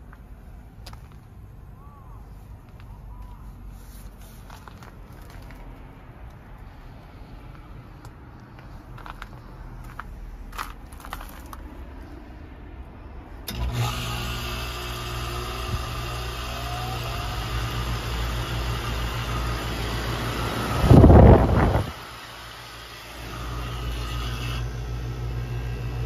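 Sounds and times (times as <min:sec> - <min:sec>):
compressor humming: 0:13.4 - 0:26.0.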